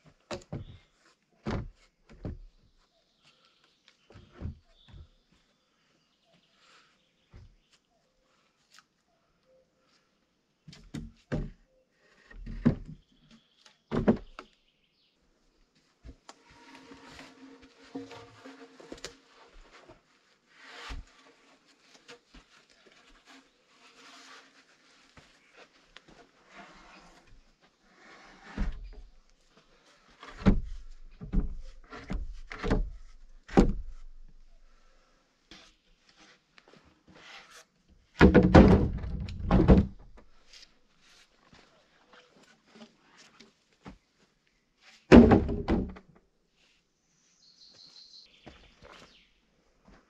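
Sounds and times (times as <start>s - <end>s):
rustling on soil and wood chips: 15.8s - 33.3s
logs thudding on wood: 38.2s - 40.2s, 45.1s - 46.1s.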